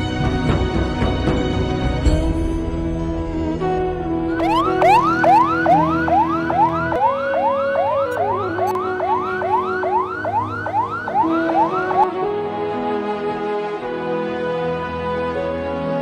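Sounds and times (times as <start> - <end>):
background music: 0.0 - 16.0
siren yelping: 4.4 - 12.1.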